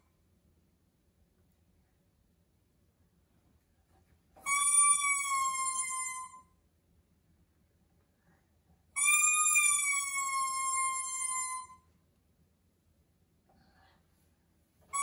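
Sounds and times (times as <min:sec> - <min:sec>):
toy trumpet notes: 0:04.4 - 0:06.4, 0:09.0 - 0:11.8.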